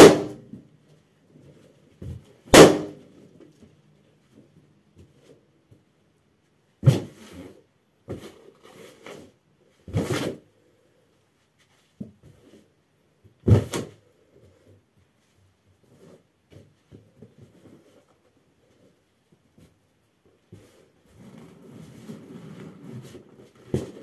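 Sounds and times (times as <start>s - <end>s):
balloons bursting underfoot: 2.5s - 3.0s.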